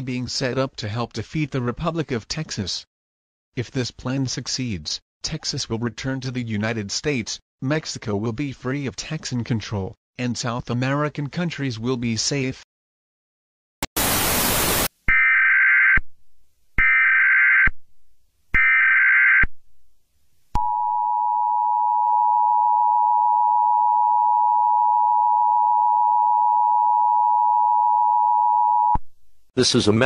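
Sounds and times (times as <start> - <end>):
tv static: 13.8 - 14.9
harsh buzzy data chirps: 14.0 - 16.0.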